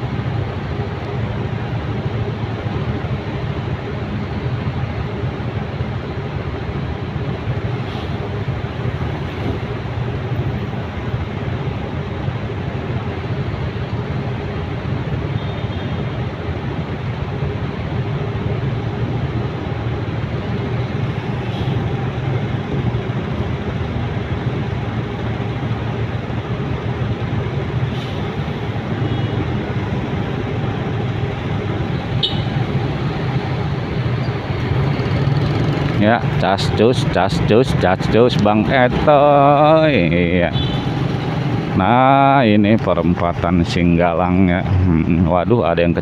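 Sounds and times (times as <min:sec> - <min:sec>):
traffic engine hum: 0:00.0 - 0:46.0.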